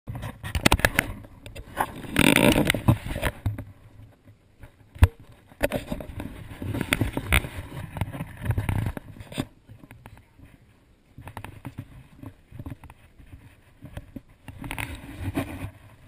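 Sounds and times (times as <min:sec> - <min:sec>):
camera rubbing: 0:00.1 - 0:16.0.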